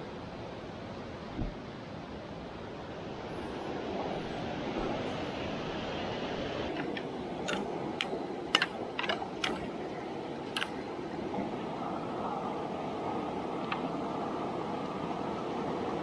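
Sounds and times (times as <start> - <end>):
river water rushing: 0.0 - 16.0
sharp clicks and knocks: 6.7 - 9.7, 10.5 - 10.8.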